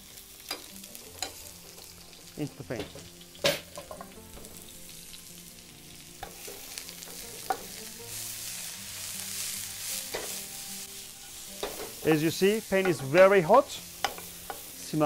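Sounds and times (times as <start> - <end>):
onions sizzling in oil: 0.0 - 15.0
wooden spoon knocking on pan: 14.0 - 14.6.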